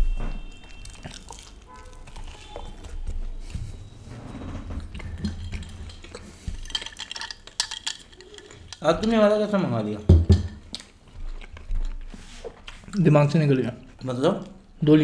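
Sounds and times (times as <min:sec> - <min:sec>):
person chewing food: 0:00.3 - 0:03.9, 0:04.8 - 0:13.1
dishes clicking: 0:04.9 - 0:10.7.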